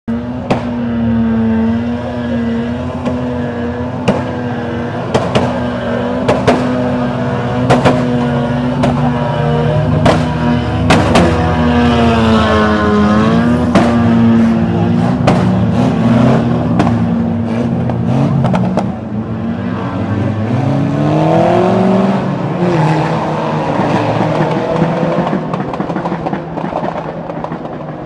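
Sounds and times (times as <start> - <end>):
racing car engines revving: 0.1 - 28.0
cars crashing bangs: 2.9 - 9.2, 9.8 - 12.1.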